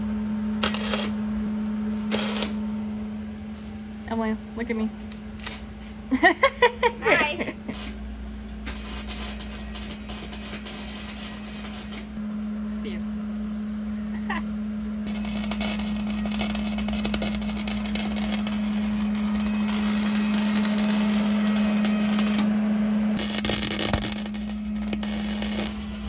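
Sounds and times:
steady low hum: 0:00.0 - 0:26.0
loud crackling sizzle: 0:00.6 - 0:01.2, 0:02.0 - 0:02.6, 0:08.6 - 0:12.2, 0:15.1 - 0:22.6, 0:23.2 - 0:26.0.

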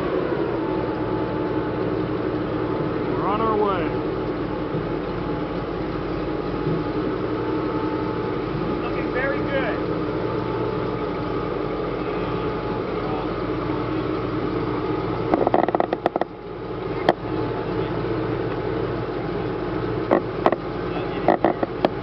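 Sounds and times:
tracked vehicle engine running: 0:00.0 - 0:22.0
tracks clanking and knocking: 0:06.6 - 0:07.0, 0:15.3 - 0:16.4, 0:20.0 - 0:22.0.

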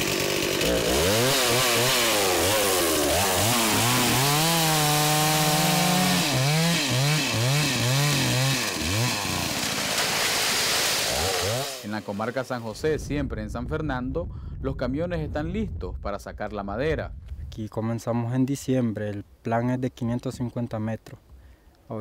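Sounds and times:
chainsaw revving: 0:00.0 - 0:12.7.

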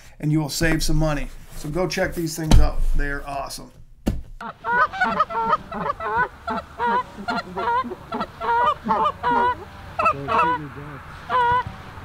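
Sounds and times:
geese honking: 0:04.4 - 0:12.0.

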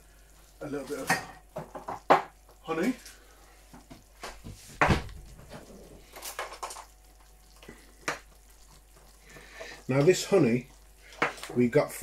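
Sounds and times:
kitchen things knocking and clinking: 0:01.0 - 0:02.4.

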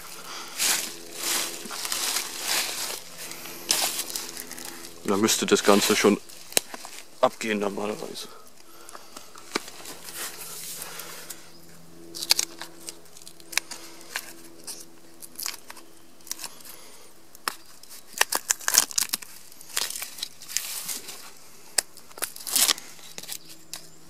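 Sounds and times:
bark peeling and crackling: 0:17.4 - 0:21.1.

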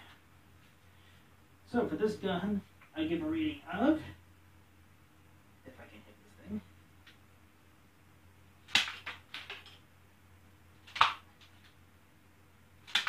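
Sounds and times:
loud sharp snap: 0:08.7 - 0:09.8, 0:10.9 - 0:11.3.

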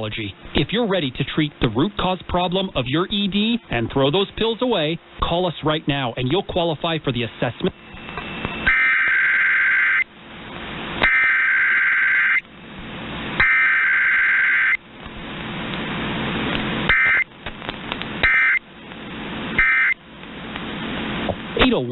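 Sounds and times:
radio reception hiss: 0:00.0 - 0:10.0
two-tone digital data bursts: 0:08.2 - 0:10.0, 0:13.4 - 0:14.8, 0:16.9 - 0:17.2, 0:18.2 - 0:18.6, 0:19.6 - 0:20.0.

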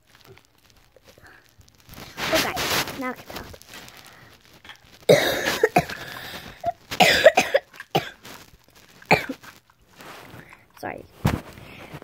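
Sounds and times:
girl coughing: 0:05.1 - 0:08.2, 0:09.1 - 0:09.4.

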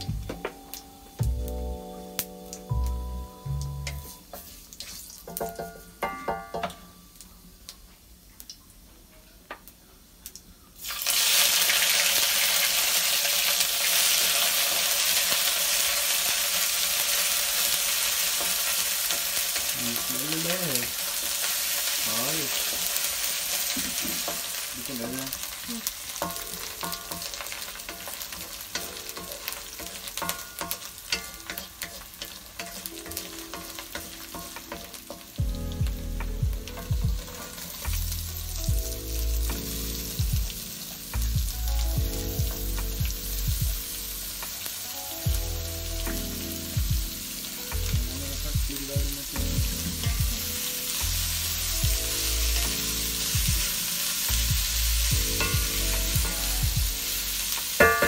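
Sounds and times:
background music: 0:00.0 - 0:04.3, 0:12.3 - 0:58.0
food sizzling in hot oil: 0:00.0 - 0:58.0
metal spatula scraping a pan: 0:26.1 - 0:35.3.

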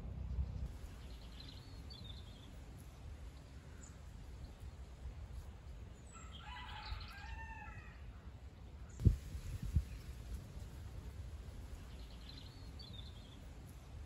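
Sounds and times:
small bird chirp: 0:00.4 - 0:02.6
faint rooster crowing: 0:06.0 - 0:08.3.

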